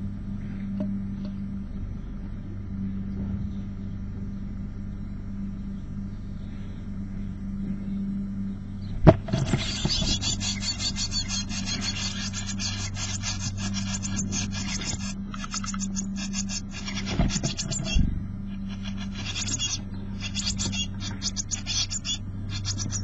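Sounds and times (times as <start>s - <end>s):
steady low hum: 0.0s - 23.0s
nestlings begging calls: 9.3s - 23.0s.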